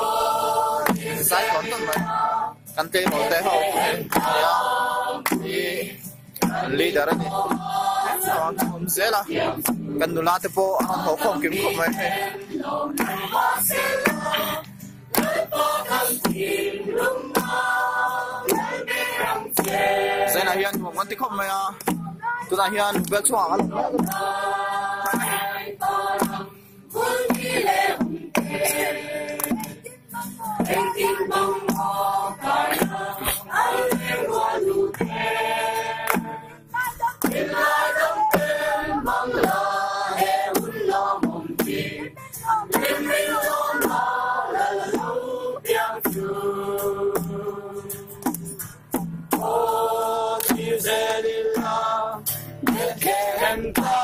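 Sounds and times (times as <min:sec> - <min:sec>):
sharp beat: 0:00.0 - 0:04.6
young voices singing a carol: 0:00.0 - 0:48.6, 0:49.3 - 0:54.0.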